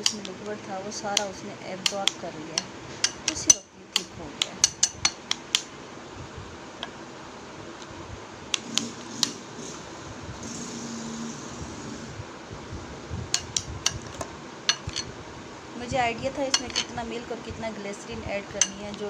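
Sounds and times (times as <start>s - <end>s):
low hiss: 0.0s - 19.0s
spoon clinking against glass bowl: 16.5s - 16.9s.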